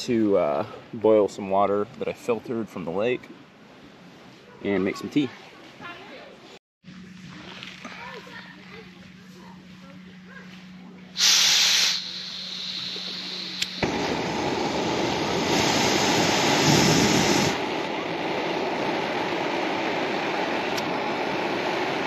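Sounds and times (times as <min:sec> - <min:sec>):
gas burner rushing: 0:11.2 - 0:22.0
gas hissing: 0:11.2 - 0:22.0
igniter click: 0:13.0 - 0:14.0.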